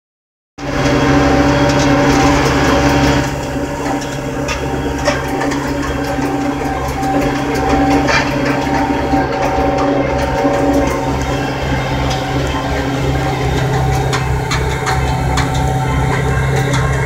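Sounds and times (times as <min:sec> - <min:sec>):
baler mechanical clatter: 0:00.6 - 0:17.0
tractor diesel engine running: 0:00.6 - 0:17.0.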